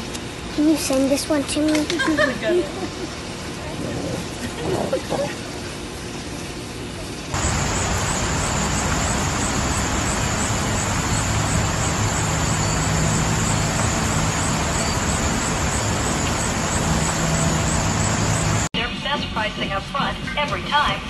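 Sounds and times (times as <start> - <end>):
low road drone: 7.4 - 18.7
wind rushing through car window: 7.4 - 18.7.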